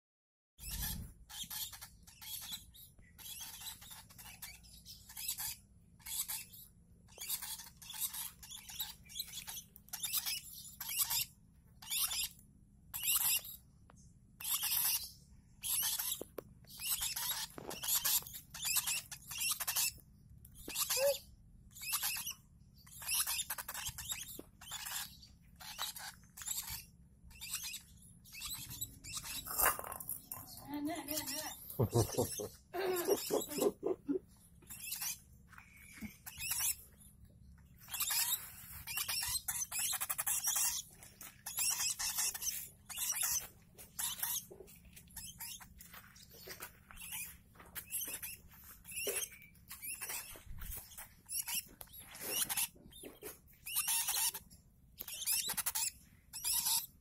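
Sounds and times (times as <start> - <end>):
chicks raspy begging calls: 30.7 - 34.8.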